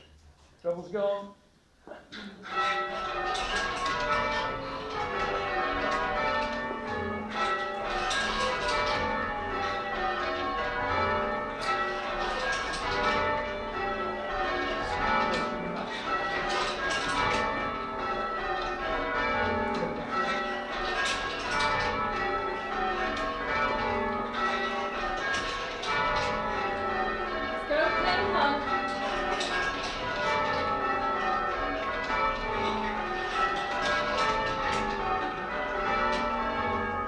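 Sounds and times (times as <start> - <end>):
church bells ringing: 2.2 - 37.0.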